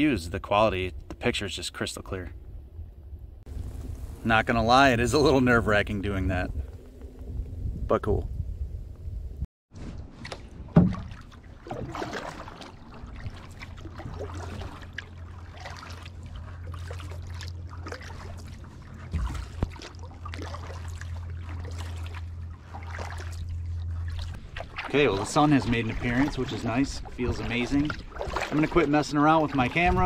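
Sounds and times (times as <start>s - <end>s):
steady low rumble: 2.2s - 9.5s, 10.5s - 30.0s
water swirling off paddle: 9.8s - 30.0s.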